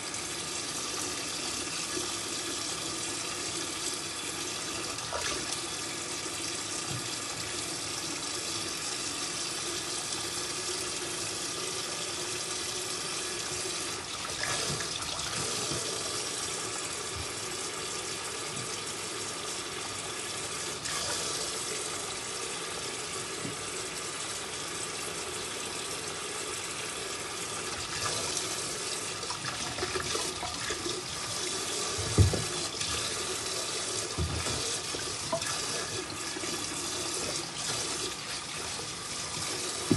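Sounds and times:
tap running into sink: 6.5 - 8.4, 13.4 - 17.7, 18.4 - 19.0, 23.2 - 23.7, 29.2 - 39.9
knock: 32.0 - 32.6.

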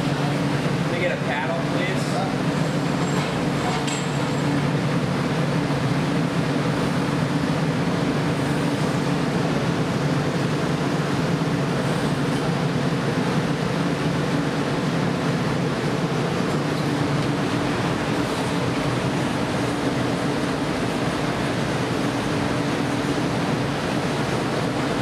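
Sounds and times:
furnace burners roaring: 0.0 - 25.0
ventilation blowers: 0.0 - 25.0.

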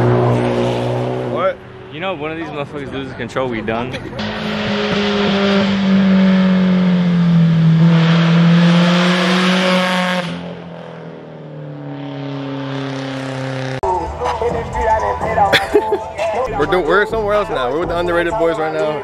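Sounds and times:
car engine revving high: 0.0 - 3.0, 3.6 - 13.9.

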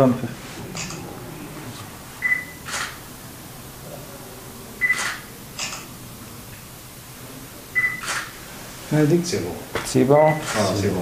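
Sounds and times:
camera focus beep: 2.2 - 3.0, 4.8 - 5.8, 7.8 - 8.3
camera shutter click: 2.6 - 3.0, 4.9 - 5.9, 8.0 - 8.3, 10.4 - 10.7.

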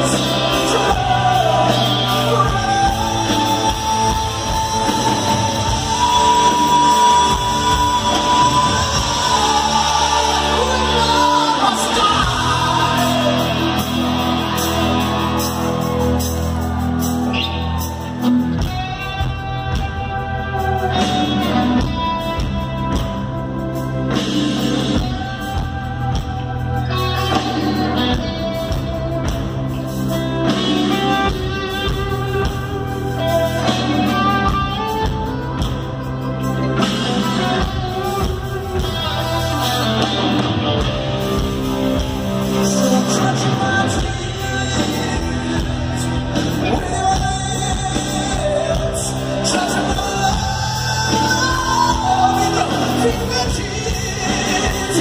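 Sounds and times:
electric guitar solo: 0.0 - 23.0
rhythmic band accompaniment: 0.0 - 55.0.

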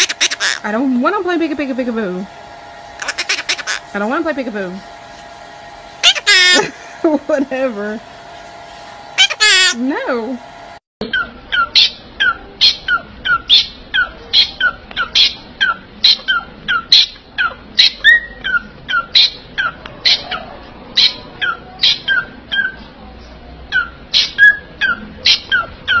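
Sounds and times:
parrots calling: 0.0 - 0.7, 3.0 - 4.0, 6.0 - 6.9, 9.2 - 9.8, 11.0 - 22.9, 23.7 - 26.0.

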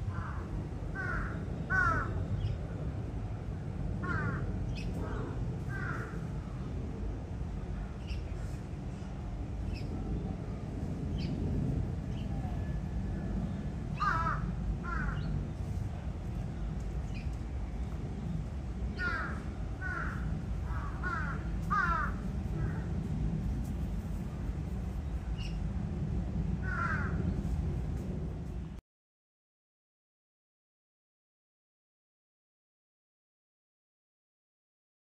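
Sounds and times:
low background rumble: 0.0 - 28.8
crows cawing: 0.1 - 2.2, 4.0 - 6.2, 14.0 - 15.2, 19.0 - 22.9, 26.6 - 27.2.

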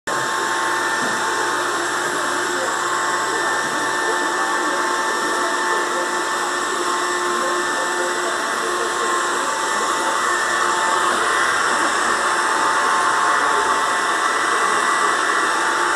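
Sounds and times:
robot vacuum cleaner whirring: 0.1 - 15.9.

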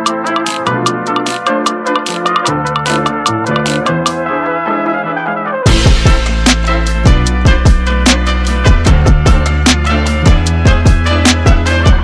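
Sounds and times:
deep kick drum hits: 5.7 - 6.4
sustained bass notes: 5.7 - 12.0.

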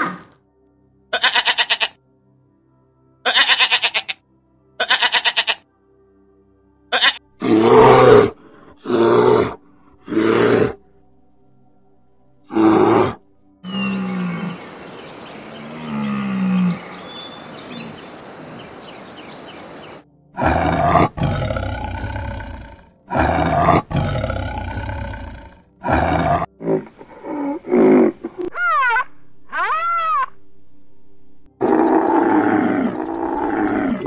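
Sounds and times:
tiger roaring: 7.4 - 10.8, 12.5 - 14.7, 15.5 - 17.0, 20.4 - 28.5, 31.6 - 34.0
low pitched animal calls: 12.5 - 18.8
short grunting calls: 12.6 - 14.8, 15.4 - 18.8
birds chirping: 13.6 - 26.5.

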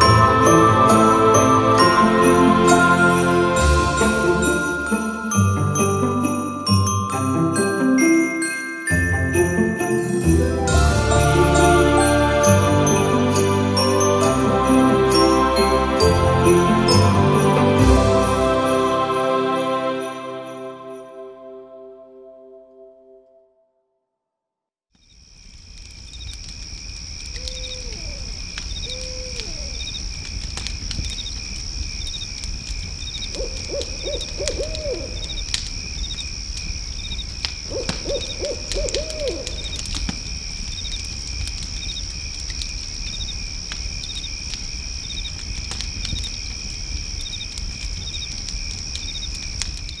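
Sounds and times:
high insect chirping: 25.0 - 50.0.

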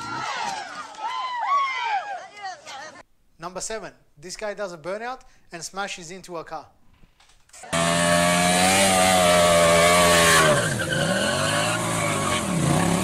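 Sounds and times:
motorcycle engine revving high: 7.7 - 13.0.

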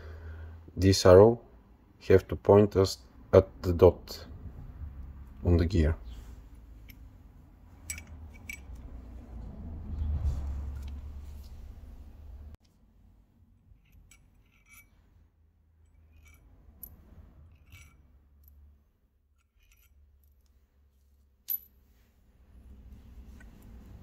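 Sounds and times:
metal bolts clicking and clinking: 7.8 - 9.0, 13.6 - 18.7, 19.3 - 20.5.

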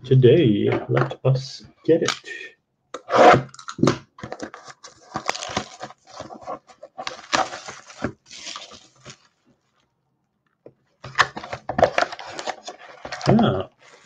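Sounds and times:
plastic wrap crinkling: 3.5 - 9.9
cardboard box being handled: 4.2 - 9.3.

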